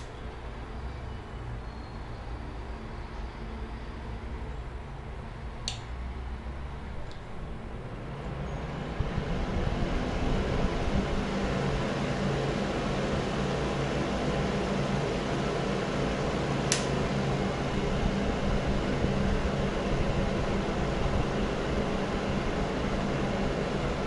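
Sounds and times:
fan heater blowing: 0.0 - 24.0
low motor hum: 4.4 - 24.0
short click: 16.7 - 16.9.

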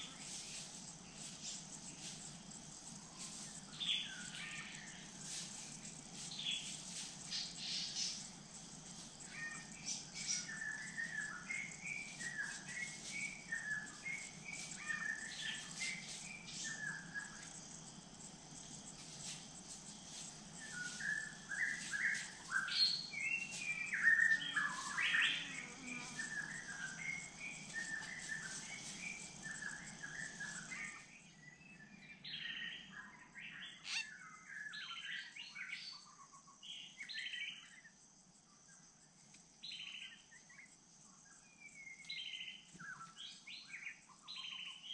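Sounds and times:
high insect hum: 0.0 - 44.9
birds chirping and calling: 2.8 - 17.7, 20.6 - 31.1, 33.5 - 35.4.

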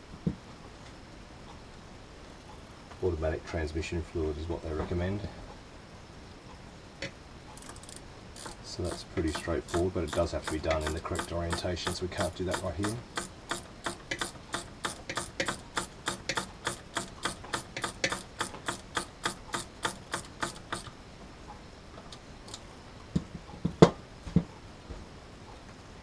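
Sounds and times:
hand ratchet clicking: 7.6 - 20.9
sharp metal knocks: 7.6 - 20.9.

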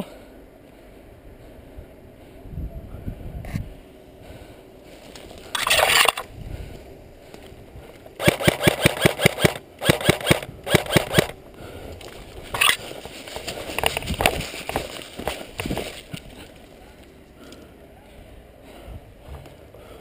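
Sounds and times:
airsoft rifle firing rapid bursts: 8.2 - 11.4.

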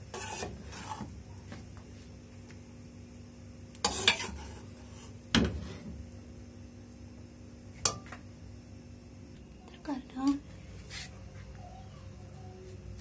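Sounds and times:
metal spoon scraping steel pot: 0.1 - 1.1, 3.8 - 4.6.

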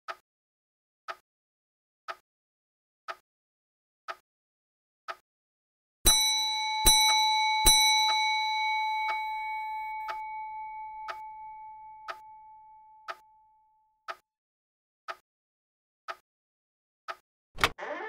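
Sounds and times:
bell ringing: 6.1 - 12.8
clock ticking: 14.1 - 14.3.

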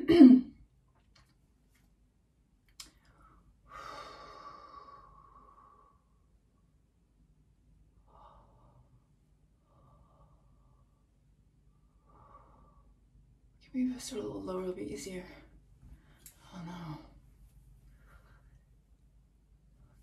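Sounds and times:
faint click: 2.7 - 3.2
woman breathing out: 3.1 - 6.0.

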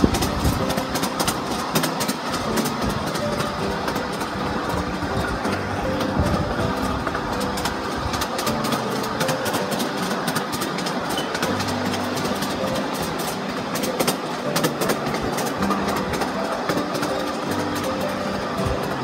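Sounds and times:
mini train running on track: 0.0 - 19.0
music with held notes: 0.0 - 19.0
wheels clicking on rails: 0.0 - 19.0.

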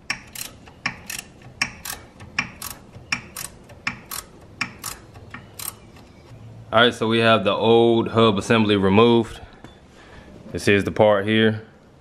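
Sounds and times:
ratchet wrench clicking: 0.0 - 6.1.

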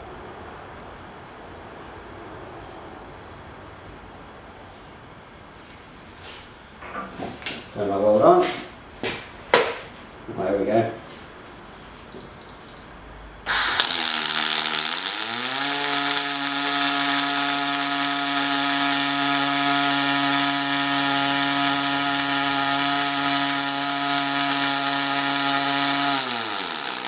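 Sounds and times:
short beeps: 12.1 - 13.2
machine hum: 12.2 - 27.0
welding arc hissing and crackling: 13.5 - 27.0.

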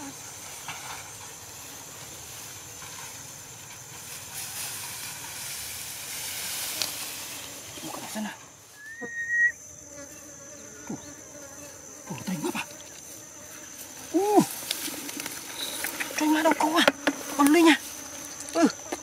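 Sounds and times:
grass rustling: 0.0 - 19.0
insect drone: 0.0 - 19.0
short rising whistle: 8.8 - 9.6.

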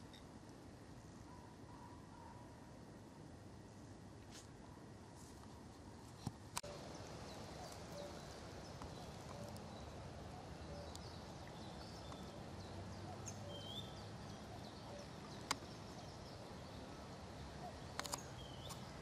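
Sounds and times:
bird chirps and calls: 6.6 - 18.9
sharp clicks: 17.9 - 18.9.

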